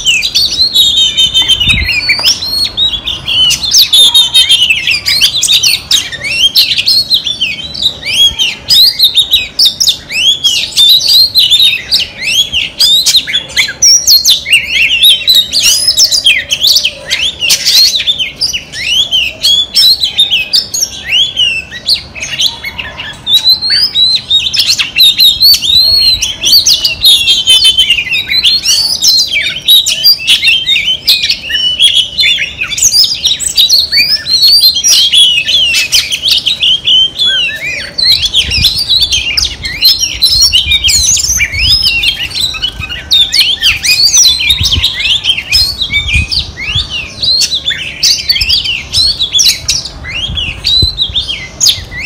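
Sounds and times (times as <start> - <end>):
bird singing whistles and trills: 0.0 - 52.0.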